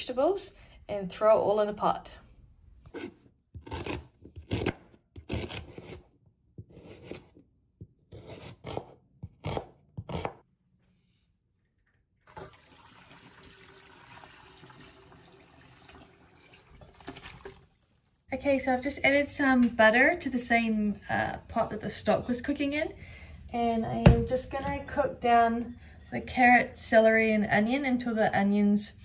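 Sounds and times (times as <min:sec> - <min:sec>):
knife chopping on cutting board: 0:08.1 - 0:10.4
stock pouring into sink: 0:12.3 - 0:17.8.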